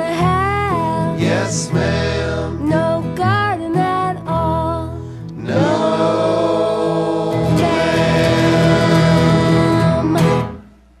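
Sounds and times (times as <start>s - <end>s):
voices singing together: 0.9s - 3.0s, 5.4s - 10.5s.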